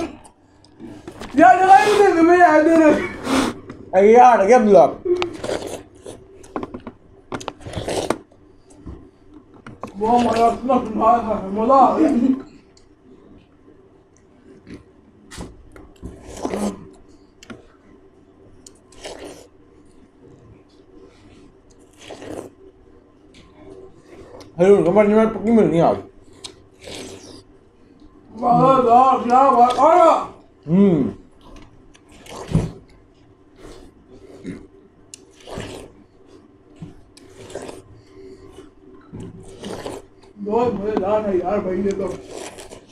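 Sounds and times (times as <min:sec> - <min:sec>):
people biting and chewing watermelon: 0:05.0 - 0:11.0, 0:14.3 - 0:17.8, 0:18.5 - 0:25.0, 0:26.1 - 0:40.4, 0:41.6 - 0:42.9
wet bites and chewing: 0:05.2 - 0:08.3, 0:34.4 - 0:36.0, 0:38.6 - 0:40.4, 0:42.1 - 0:42.9.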